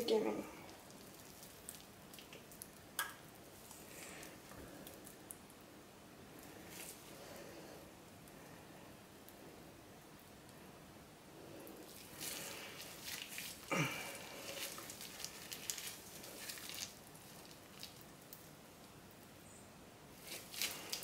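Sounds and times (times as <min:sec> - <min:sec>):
piping bag squelching: 0:00.0 - 0:05.3, 0:11.7 - 0:18.6, 0:20.2 - 0:21.0.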